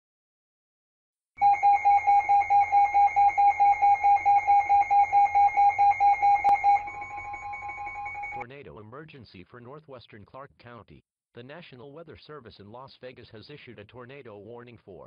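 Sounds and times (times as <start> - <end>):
pulsing high alert beep: 1.4 - 8.4
steady electronic tone: 1.4 - 8.4.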